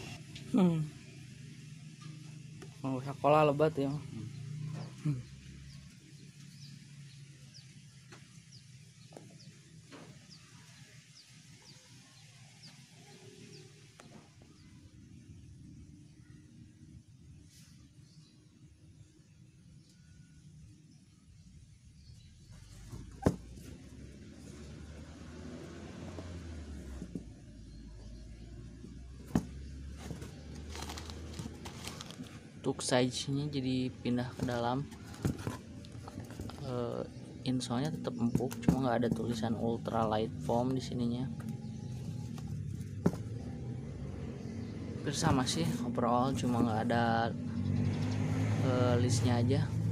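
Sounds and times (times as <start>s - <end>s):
sneakers handled on cardboard: 22.6s - 23.8s, 26.0s - 27.4s, 29.2s - 32.4s, 34.2s - 36.7s, 37.8s - 39.6s, 41.4s - 43.6s
rustling: 29.2s - 32.6s, 34.2s - 37.3s, 41.3s - 43.7s.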